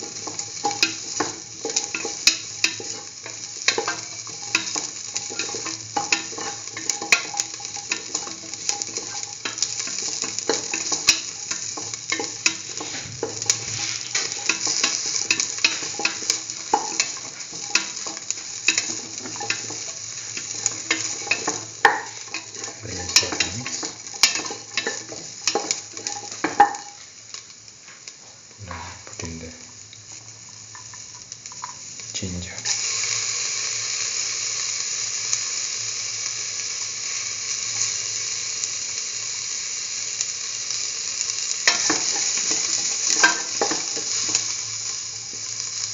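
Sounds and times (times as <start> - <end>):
utensil stirring against pan: 0.0 - 27.5, 41.6 - 45.9
onions sizzling in oil: 0.0 - 45.9.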